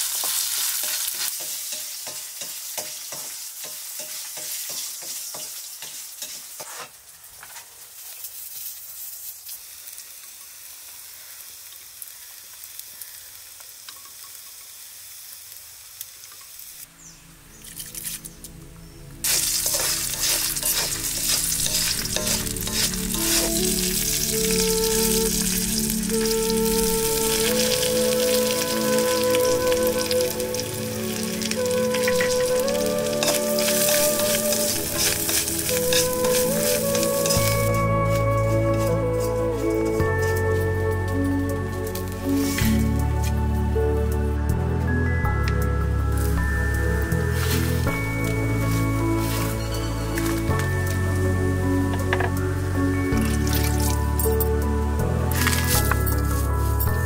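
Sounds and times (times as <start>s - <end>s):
food sizzling in wok: 0.0s - 57.0s
wooden spatula scraping wok: 4.0s - 7.8s, 19.3s - 40.7s, 47.3s - 48.0s, 48.6s - 50.5s
background music with held notes: 16.9s - 57.0s.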